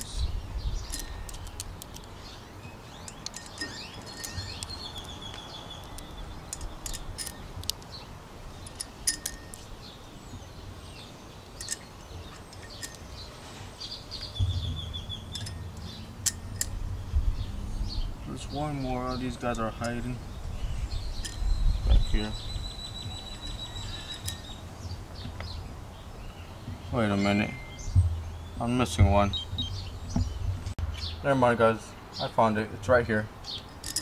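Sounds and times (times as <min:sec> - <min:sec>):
birds chirping: 0:00.0 - 0:34.0
metal washers clinking: 0:00.8 - 0:02.3, 0:02.9 - 0:10.0, 0:11.4 - 0:13.3, 0:14.4 - 0:16.9, 0:18.6 - 0:20.2, 0:21.0 - 0:22.3, 0:23.3 - 0:24.6, 0:33.5 - 0:34.0.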